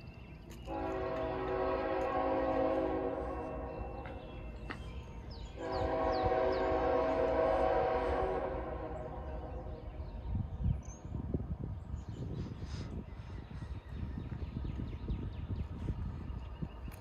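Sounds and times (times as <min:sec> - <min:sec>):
locomotive air horn blasts: 0:00.7 - 0:04.2, 0:05.6 - 0:09.9.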